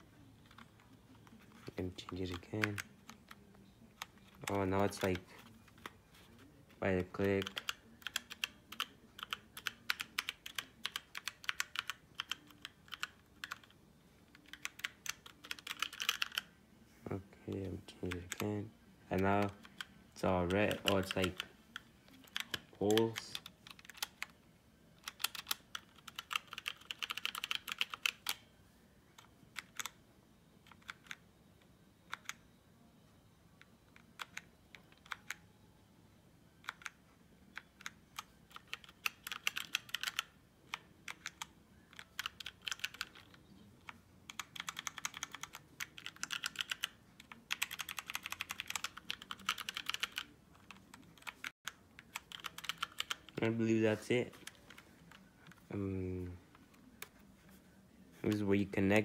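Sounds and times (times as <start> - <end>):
mechanical keyboard typing: 0.4 - 3.4, 6.9 - 16.5, 19.1 - 24.4, 25.0 - 28.4, 30.6 - 31.2, 36.6 - 53.4.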